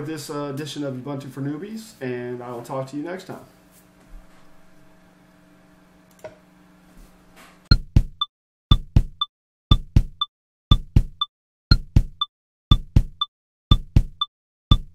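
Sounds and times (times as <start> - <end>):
low room hum: 0.0 - 7.6
drum machine percussion: 7.7 - 14.9.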